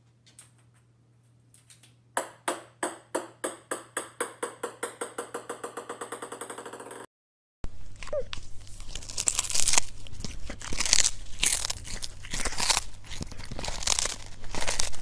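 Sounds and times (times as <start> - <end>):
ping-pong ball bouncing on wood: 2.2 - 7.1.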